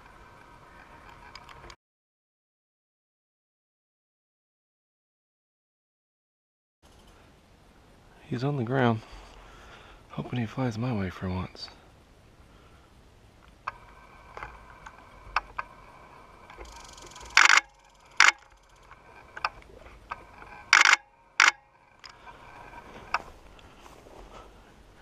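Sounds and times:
faint ticks: 16.4s - 20.8s
camera shutter firing: 16.8s - 18.5s, 20.8s - 21.6s.

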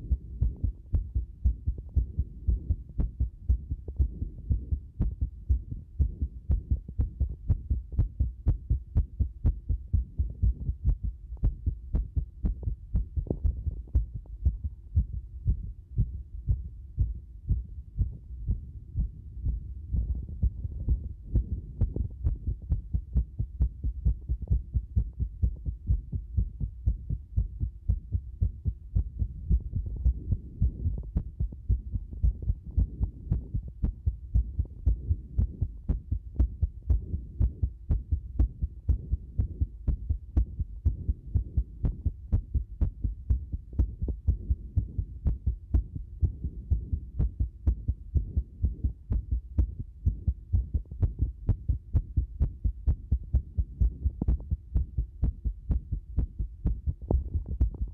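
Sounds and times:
heart beating irregularly: 0.0s - 57.9s.

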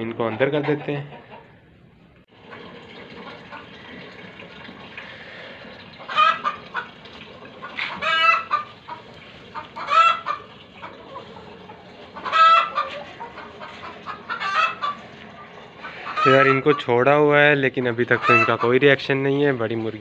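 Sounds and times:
chickens calling: 0.0s - 1.8s, 5.3s - 19.2s.

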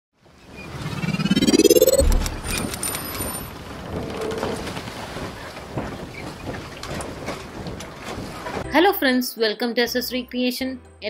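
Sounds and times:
rumbling crackling noise: 0.7s - 5.1s
deep boom: 1.4s - 2.7s
scattered clicks: 1.6s - 3.2s.

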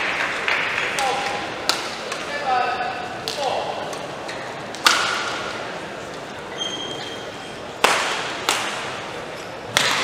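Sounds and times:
rackets hitting shuttlecock: 0.0s - 2.3s, 4.7s - 5.7s, 7.8s - 9.1s, 9.7s - 10.0s
short high squeak: 6.5s - 7.6s.

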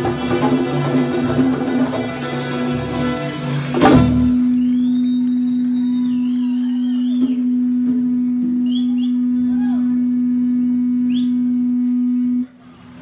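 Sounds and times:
steady tone from sound system: 3.9s - 12.8s
faint wavering whistle-like glides: 4.5s - 11.7s.

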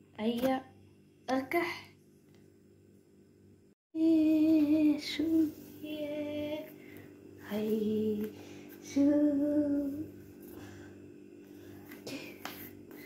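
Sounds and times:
woman singing long held notes: 4.0s - 6.8s, 7.4s - 10.2s.

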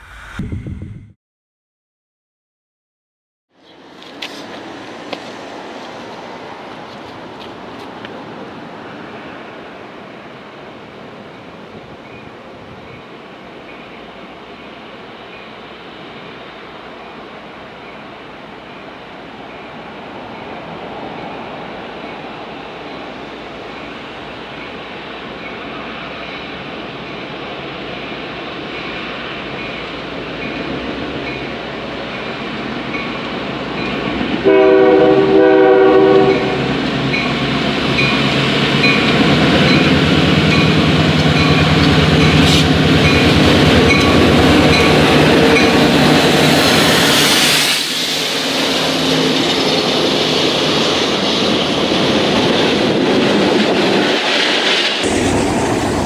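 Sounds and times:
train wheels on rails: 3.6s - 56.0s
diesel locomotive rumbling: 3.7s - 56.0s
train horn blasts: 34.4s - 36.7s.

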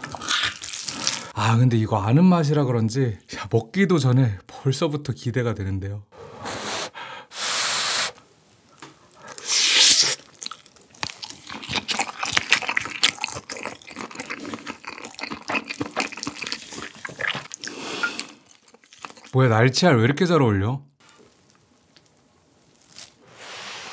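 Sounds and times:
wet chewing with crackles: 0.0s - 1.3s, 10.2s - 19.4s.

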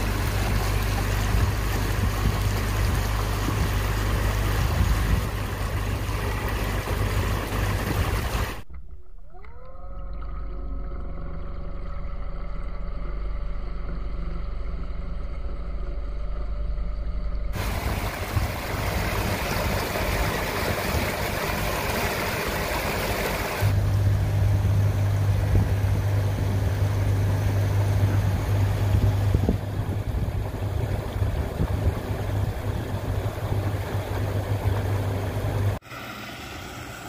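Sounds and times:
water rushing and spraying: 0.0s - 8.8s, 17.6s - 37.0s
electric outboard motor humming: 9.8s - 37.0s.

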